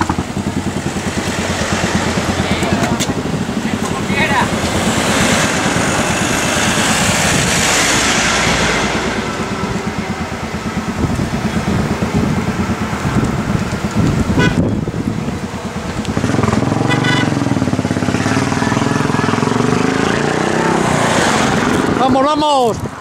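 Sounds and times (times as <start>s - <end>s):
van driving past: 0.0s - 23.0s
wind buffeting microphone: 0.0s - 23.0s
vehicle horn toot: 14.3s - 14.8s, 16.8s - 17.6s.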